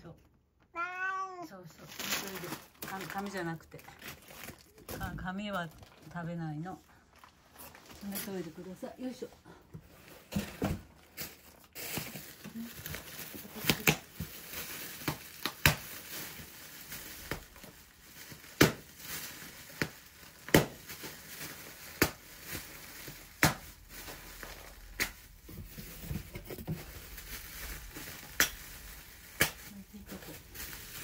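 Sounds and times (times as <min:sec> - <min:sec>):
newspaper crinkling: 0:01.8 - 0:04.9, 0:06.9 - 0:08.6, 0:11.0 - 0:31.0.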